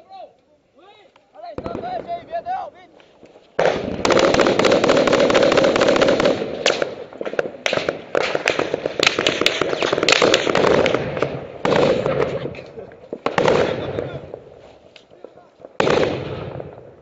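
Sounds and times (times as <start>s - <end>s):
small-arms gunfire: 3.6s - 12.6s, 13.2s - 14.2s, 15.8s - 16.9s.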